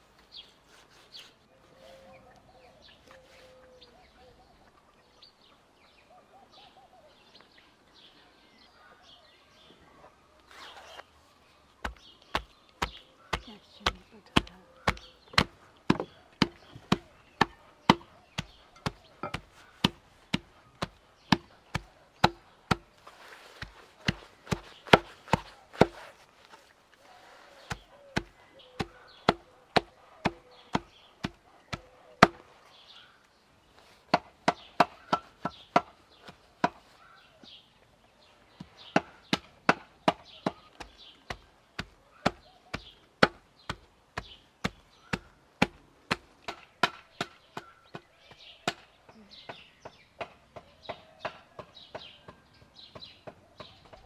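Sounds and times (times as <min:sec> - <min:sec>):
cleaver chopping meat on wood: 0:11.8 - 0:23.0, 0:23.6 - 0:26.0, 0:27.7 - 0:32.4, 0:38.9 - 0:48.9.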